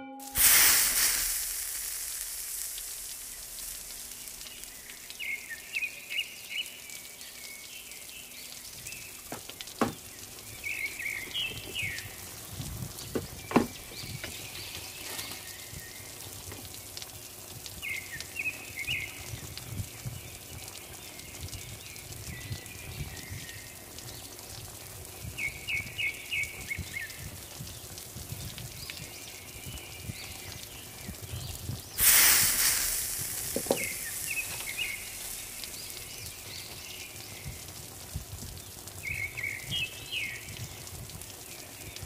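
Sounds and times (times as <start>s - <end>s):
intro music: 0.0s - 1.0s
steady hiss: 0.0s - 42.0s
faint high chirps: 32.0s - 37.6s.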